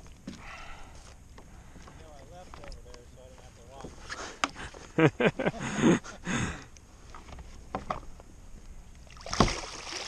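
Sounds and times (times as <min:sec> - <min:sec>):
fish splashing and thrashing: 0:08.9 - 0:10.0.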